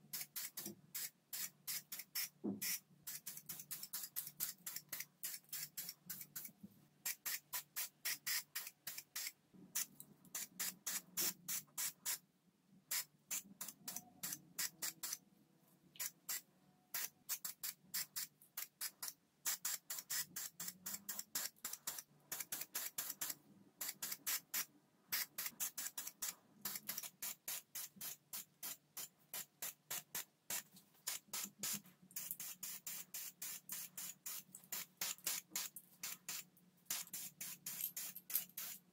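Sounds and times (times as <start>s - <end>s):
spray-paint can hissing bursts: 0.1s - 6.2s, 7.0s - 9.3s, 21.1s - 38.8s.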